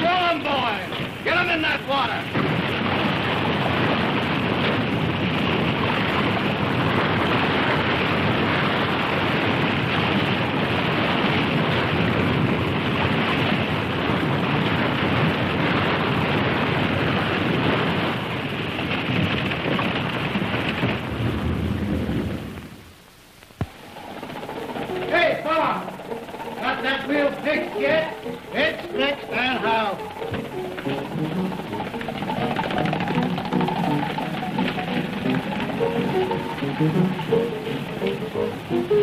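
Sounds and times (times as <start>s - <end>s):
river water rushing: 23.7s - 39.0s.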